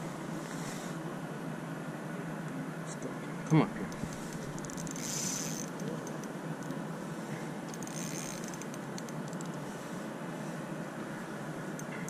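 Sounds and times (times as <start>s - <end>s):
wind: 0.0s - 12.0s
fishing reel whirring: 3.9s - 5.9s, 7.7s - 9.5s.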